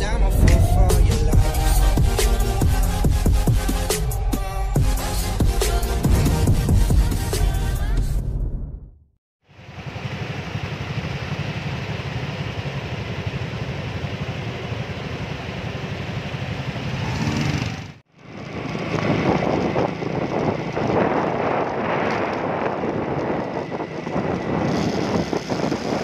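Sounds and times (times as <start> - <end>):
wind buffeting microphone: 0.0 - 4.2, 18.4 - 26.0
engine running while riding: 9.5 - 26.0
motorcycle engines idling: 9.5 - 26.0.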